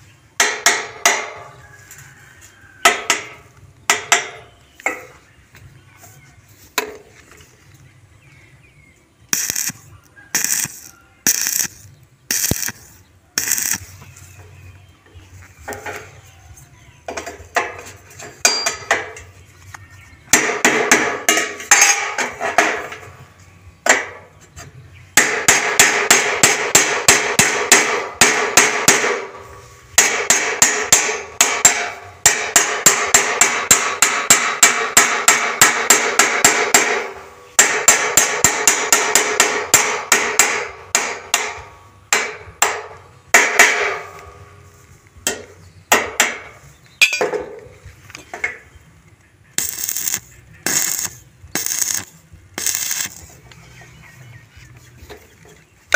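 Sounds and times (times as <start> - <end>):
hammer striking steel: 0.4 - 1.5, 2.9 - 5.1, 17.1 - 19.3, 20.3 - 23.1, 25.2 - 29.4, 30.0 - 44.4, 45.2 - 47.6.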